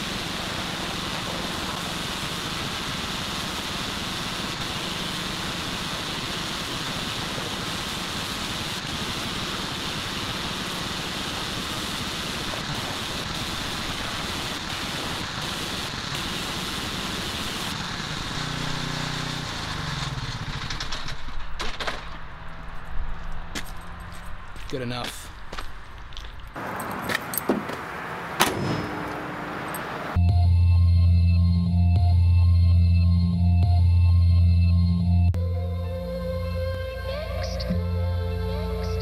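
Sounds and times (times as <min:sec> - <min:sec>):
pressure washer spraying water: 0:00.0 - 0:20.2.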